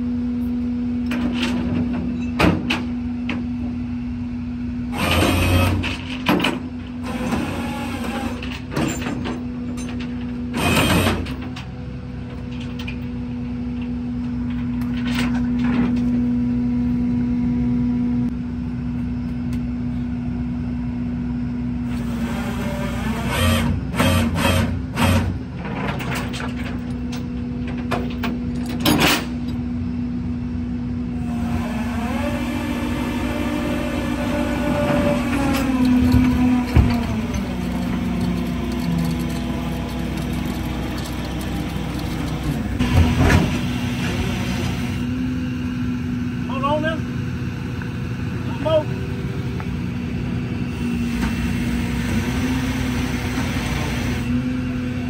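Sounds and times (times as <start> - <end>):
metal clanks and rattles: 8.4 - 11.7, 25.6 - 29.6, 34.8 - 43.5
truck engine humming: 29.6 - 55.0.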